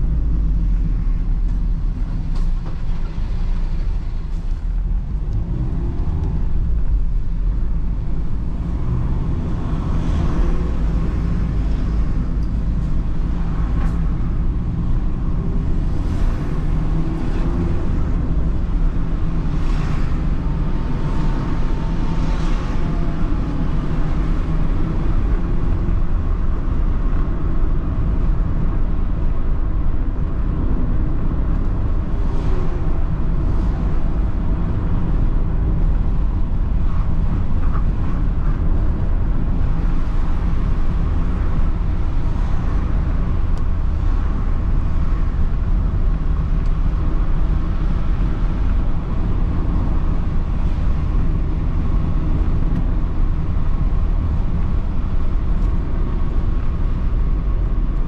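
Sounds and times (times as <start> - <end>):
car engine drone: 0.0 - 58.0
tyre and road noise: 0.0 - 58.0.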